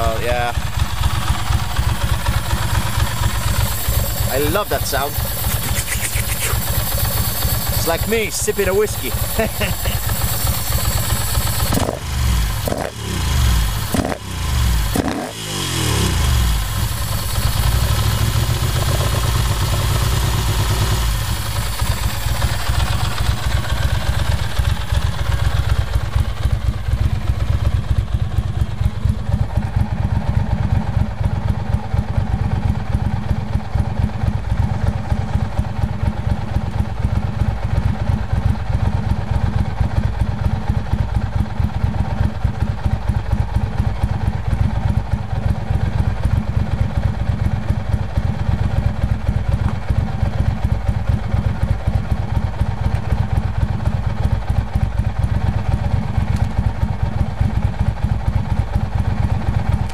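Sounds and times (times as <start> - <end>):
motorcycle engine revving: 0.0 - 40.2
motorcycle engine idling: 0.0 - 59.9.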